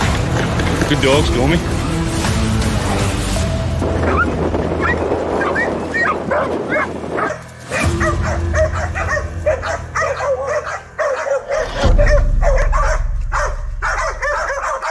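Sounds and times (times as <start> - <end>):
background music: 0.0 - 14.9
dogs yelping and whining: 3.8 - 14.9.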